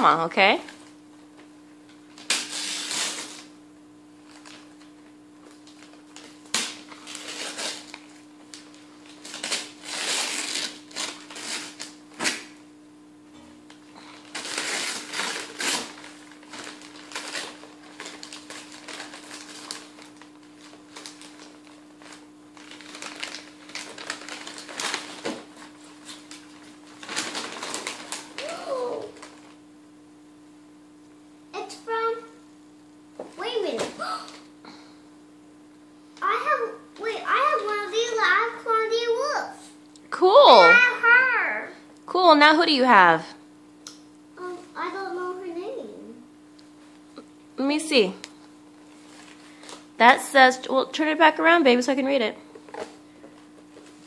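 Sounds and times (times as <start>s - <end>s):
steady low hum: 0.0s - 54.0s
gift wrap ripping and crinkling: 2.1s - 3.5s, 4.2s - 4.8s, 5.4s - 12.5s, 14.1s - 29.6s.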